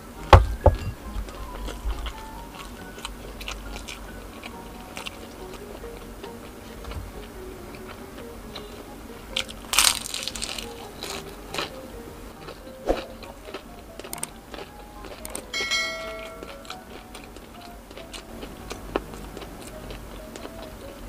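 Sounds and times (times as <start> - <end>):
crunchy food bites: 9.3 - 11.8, 12.4 - 15.6
ringing clink: 15.5 - 16.7.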